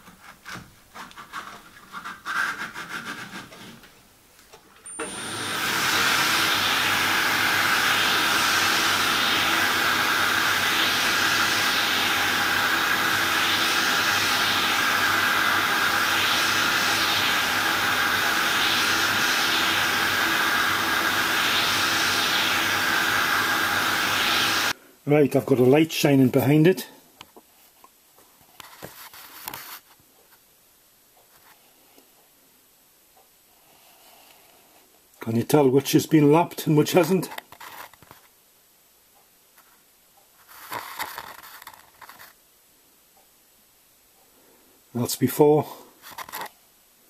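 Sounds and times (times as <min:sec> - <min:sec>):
lathe whirring with high whine: 0:04.8 - 0:24.8.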